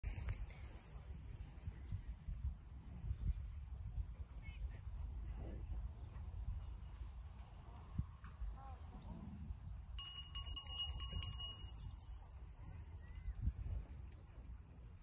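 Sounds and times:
wind buffeting microphone: 0:00.0 - 0:15.0
small birds chirping: 0:01.3 - 0:09.8.

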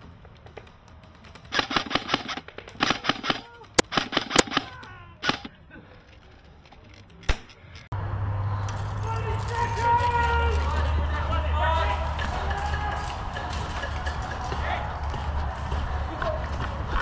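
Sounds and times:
airsoft rifle shots: 0:01.5 - 0:05.5.

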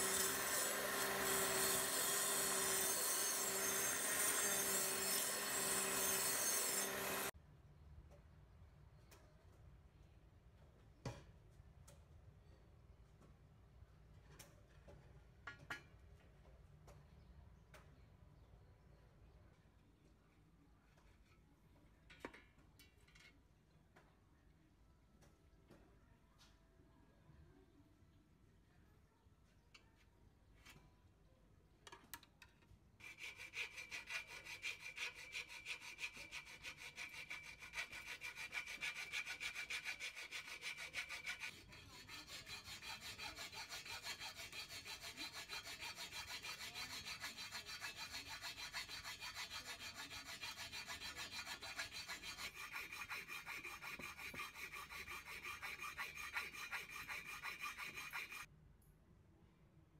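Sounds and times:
hacksaw cutting metal: 0:00.0 - 0:07.3, 0:33.0 - 0:58.5.

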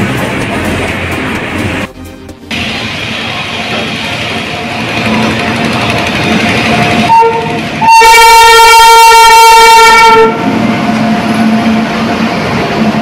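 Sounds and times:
locomotive air horn: 0:07.1 - 0:10.4.

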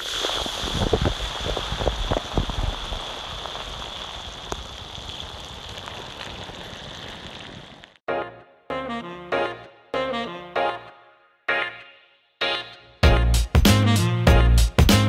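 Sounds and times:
steady hiss: 0:00.0 - 0:07.9.

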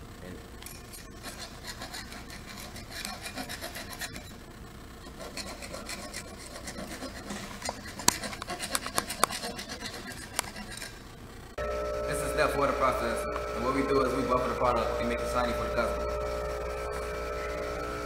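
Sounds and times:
hand file rasping on brass: 0:00.9 - 0:04.4, 0:05.0 - 0:11.0.

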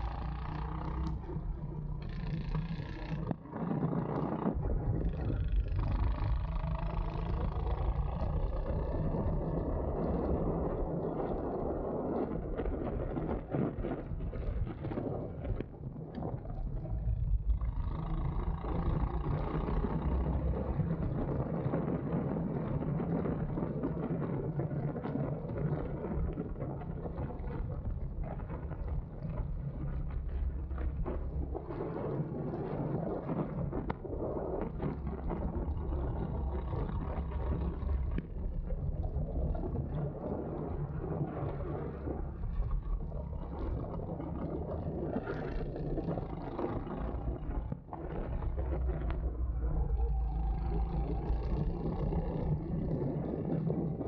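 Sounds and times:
go-kart engine running: 0:00.0 - 0:04.7
wind noise on microphone: 0:00.0 - 0:54.0.

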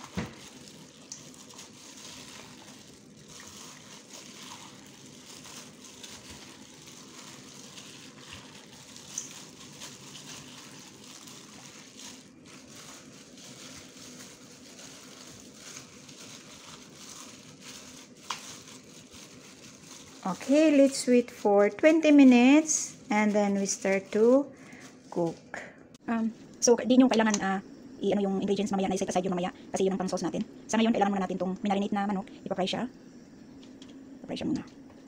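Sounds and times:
wet squishing and sloshing: 0:00.0 - 0:21.0
plastic glove crinkling: 0:00.0 - 0:25.5.

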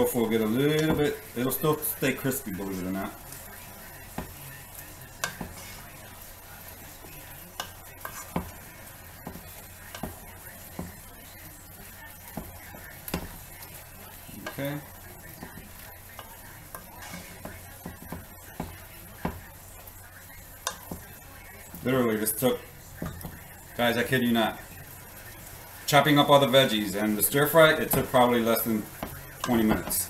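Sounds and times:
stir fry sizzling in a pan: 0:00.0 - 0:30.0
utensil scraping a pan: 0:04.0 - 0:11.0, 0:14.4 - 0:18.7.

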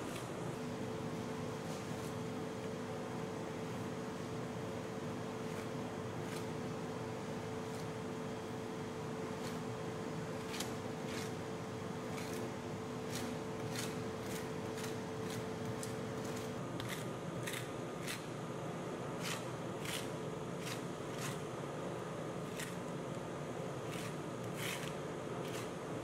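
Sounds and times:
steady hum: 0:00.0 - 0:26.0
metal spatula scraping cold plate: 0:23.9 - 0:25.7.

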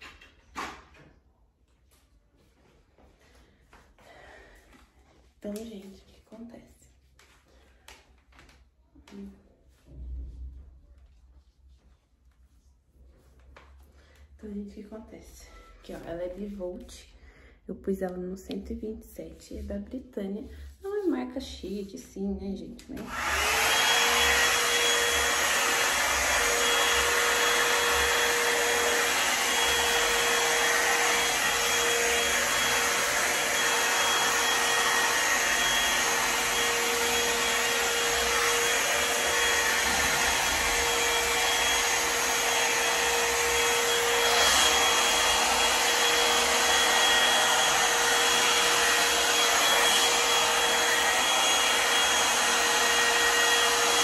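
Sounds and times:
hair dryer running: 0:22.7 - 0:54.0.

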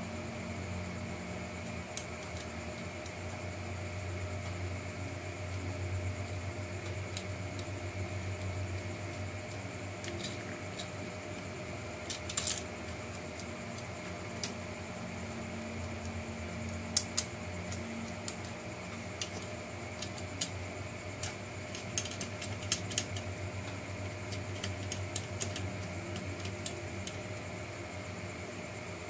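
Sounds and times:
steady hum: 0:00.0 - 0:29.0
plastic parts clicking: 0:09.5 - 0:11.1, 0:12.0 - 0:14.6, 0:16.9 - 0:20.6, 0:21.2 - 0:27.2.

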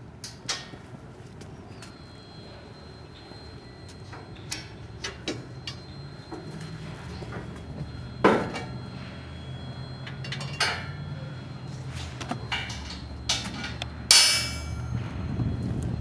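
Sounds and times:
steady low hum: 0:00.0 - 0:16.0
loud ringing metal clang: 0:10.1 - 0:11.1, 0:12.5 - 0:15.1
metal ramp clanking: 0:12.4 - 0:14.9.

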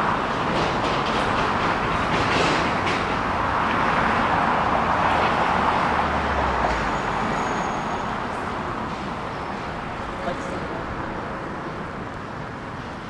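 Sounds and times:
traffic and road noise: 0:00.0 - 0:13.0.

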